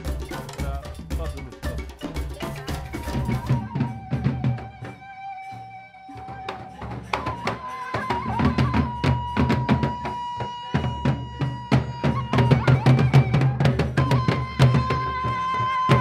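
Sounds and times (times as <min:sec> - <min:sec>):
barrel drums in fast rhythm: 0:00.0 - 0:05.2, 0:06.2 - 0:16.0.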